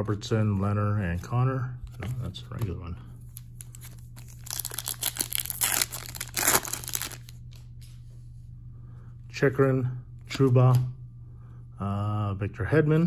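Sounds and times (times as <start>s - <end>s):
foil wrapper tearing and crinkling: 3.7s - 7.3s.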